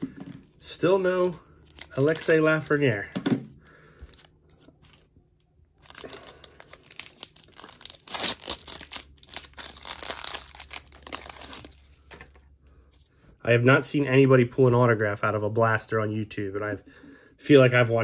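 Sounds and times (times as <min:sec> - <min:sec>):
foil wrapper tearing and crinkling: 0:01.6 - 0:03.0, 0:05.8 - 0:11.8.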